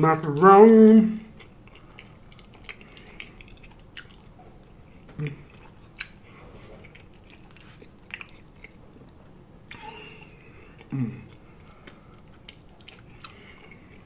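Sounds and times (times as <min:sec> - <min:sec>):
person humming: 0:10.9 - 0:11.3.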